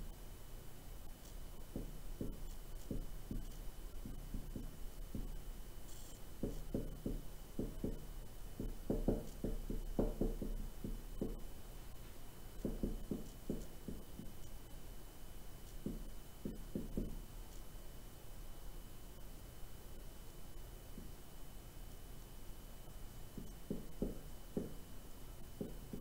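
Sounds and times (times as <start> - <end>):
faint electrical hum: 0.0 - 26.0
marker writing on a whiteboard: 1.2 - 11.5, 12.6 - 14.5, 15.6 - 17.2, 23.4 - 24.8, 25.5 - 26.0.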